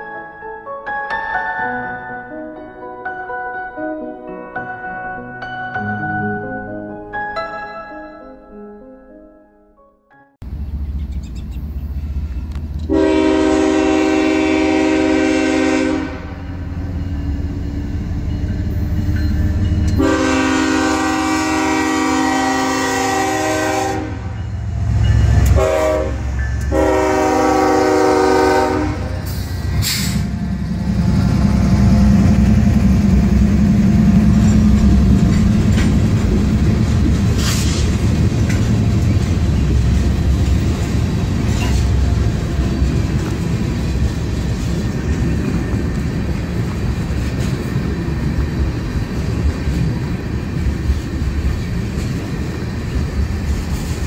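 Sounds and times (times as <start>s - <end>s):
diesel locomotives rumbling: 10.4s - 54.0s
locomotive air horn blasts: 12.8s - 16.5s, 20.0s - 24.4s, 25.4s - 30.4s
freight cars rolling over rails: 29.5s - 54.0s.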